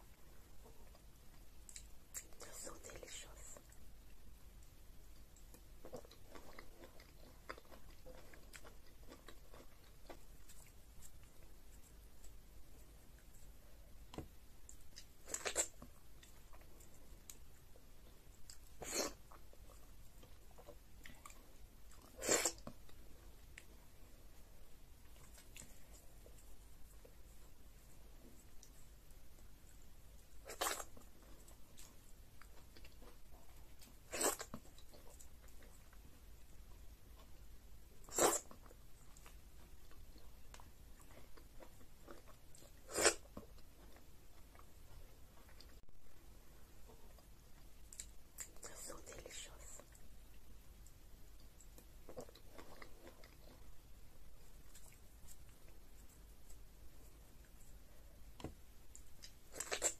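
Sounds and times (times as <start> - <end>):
soft chewing: 0.0 - 59.9.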